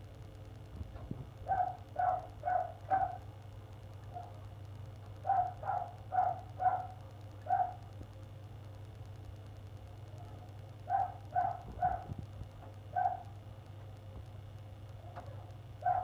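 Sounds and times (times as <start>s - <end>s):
dog barking: 1.4s - 3.3s, 4.1s - 4.4s, 5.2s - 7.8s, 10.2s - 12.2s, 12.9s - 13.3s, 15.8s - 16.0s.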